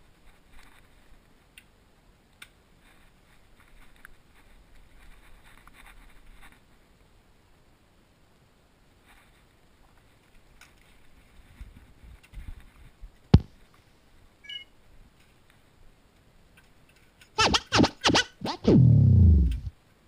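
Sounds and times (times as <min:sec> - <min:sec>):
faint rustling and handling: 0:00.0 - 0:01.6, 0:02.7 - 0:07.1, 0:09.0 - 0:14.2
sharp click: 0:17.4 - 0:19.7
vinyl record scratching: 0:17.4 - 0:19.7.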